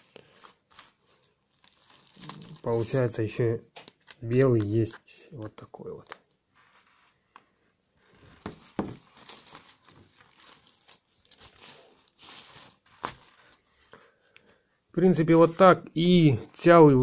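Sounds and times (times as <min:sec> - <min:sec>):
packaging crinkling: 0:00.0 - 0:03.2, 0:07.9 - 0:13.9.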